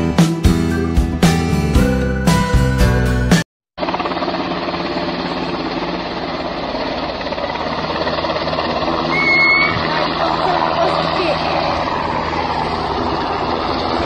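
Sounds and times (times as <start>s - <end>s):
helicopter rotor blade chop: 3.8s - 14.0s
short high beep: 9.1s - 9.8s.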